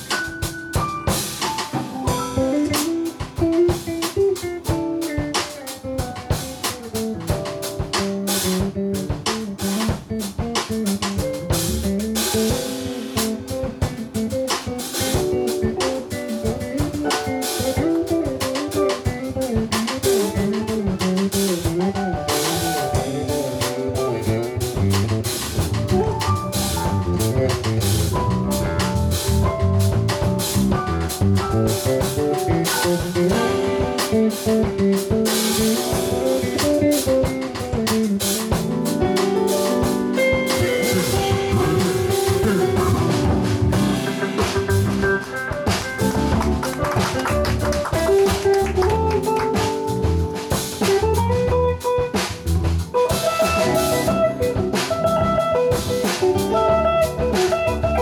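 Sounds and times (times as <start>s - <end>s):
drum kit with cymbal and snare: 0.0s - 58.0s
guitar: 0.0s - 58.0s
electric bass line: 8.1s - 39.4s, 40.2s - 58.0s
organ-style keyboard: 39.1s - 48.3s.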